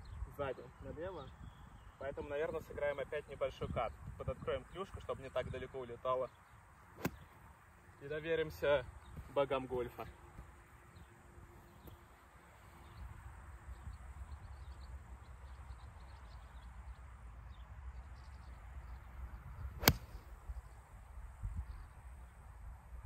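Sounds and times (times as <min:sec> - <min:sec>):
wind rumble on microphone: 0:00.0 - 0:05.8, 0:19.0 - 0:23.0
golf club striking ball: 0:19.8 - 0:20.2.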